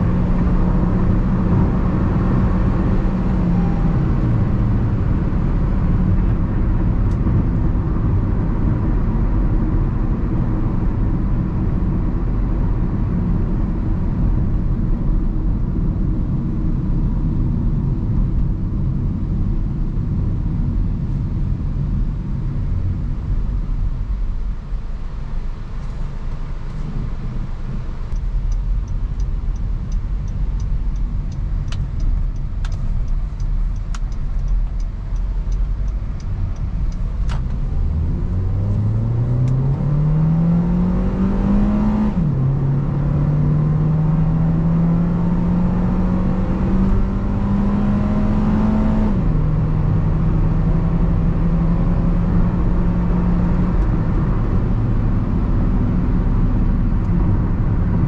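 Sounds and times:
car engine accelerating: 0.0 - 19.3, 20.6 - 58.0
road noise: 0.0 - 58.0
faint regular ticking: 28.1 - 37.4
sharp clicks: 28.1 - 37.6.

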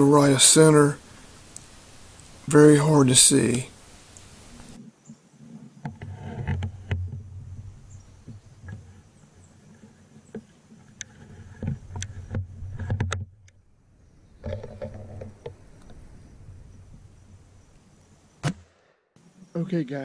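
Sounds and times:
sharp clicks and crackles: 1.5 - 2.5.

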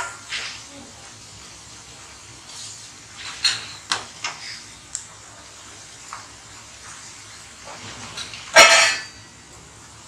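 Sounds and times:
deep-frying in hot oil: 0.0 - 10.0
metal utensil clang: 8.5 - 9.2.

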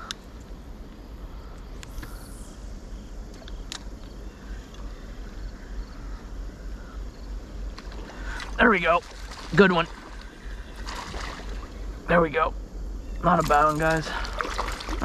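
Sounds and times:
faint insect chirps: 0.0 - 15.0
steady low rumble: 0.0 - 15.0.

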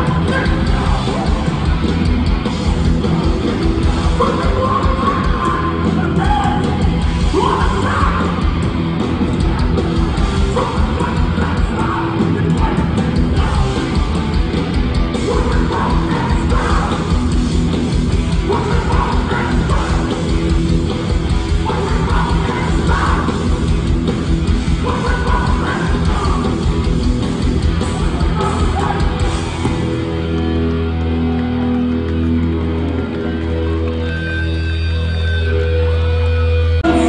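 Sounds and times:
pounding drums: 0.0 - 30.5
distorted guitars: 0.0 - 37.0
shouted vocals: 4.0 - 8.6, 9.3 - 13.9, 15.2 - 17.3, 18.3 - 20.3, 21.5 - 23.8, 24.7 - 26.9, 27.8 - 29.9.

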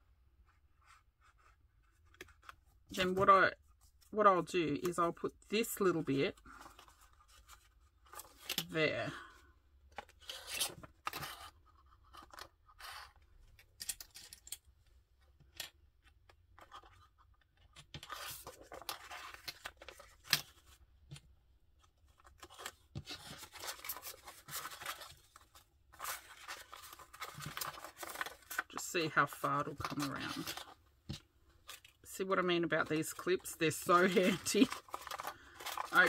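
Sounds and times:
plastic film and paper crinkling: 22.2 - 30.8, 31.6 - 36.0.

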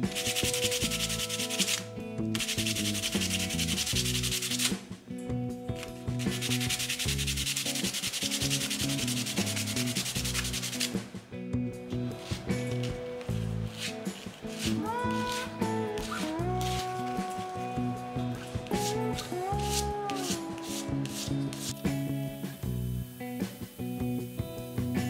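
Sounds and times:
wood rubbed on sandpaper: 0.0 - 4.7, 6.2 - 11.0, 12.6 - 17.9, 18.7 - 22.0.

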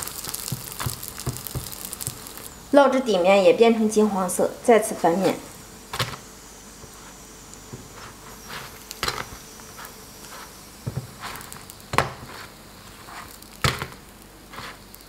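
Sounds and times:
tongs tapping griddle: 0.0 - 2.3, 10.8 - 12.4
faint sizzle: 0.0 - 15.0.

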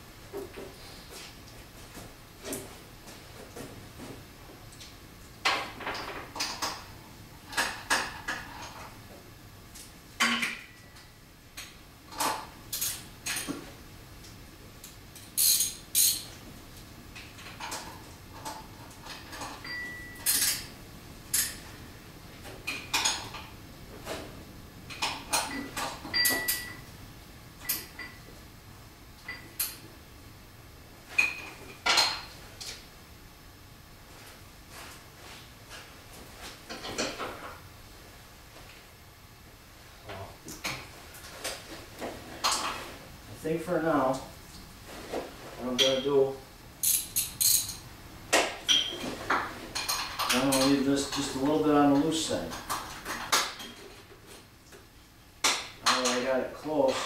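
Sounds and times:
metal tools clinking on metal: 15.4 - 16.3, 46.8 - 47.8.

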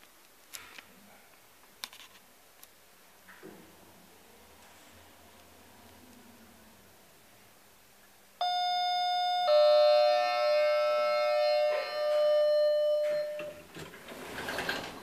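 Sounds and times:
lift arrival chime two notes: 8.4 - 13.6.

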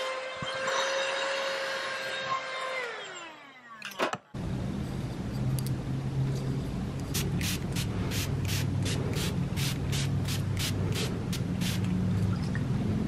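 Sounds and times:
steady low hum: 4.4 - 13.0.

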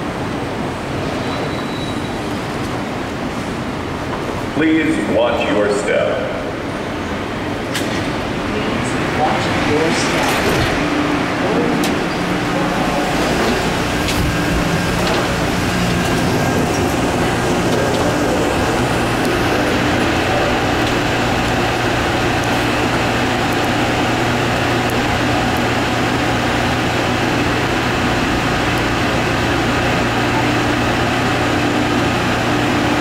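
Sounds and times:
train rolling noise: 0.0 - 33.0
low motor hum: 9.4 - 33.0.

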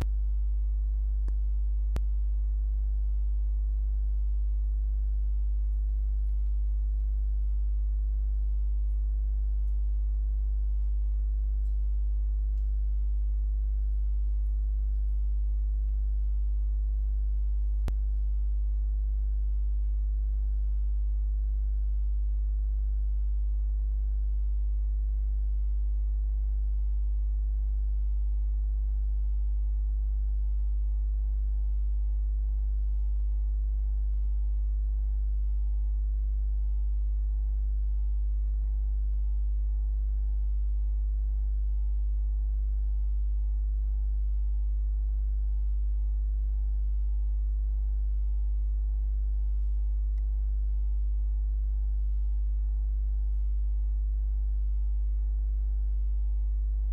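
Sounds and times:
electrical mains hum: 0.0 - 56.9
faint click: 1.2 - 2.1, 5.6 - 7.2, 11.6 - 11.8, 12.5 - 12.8, 49.6 - 50.4.

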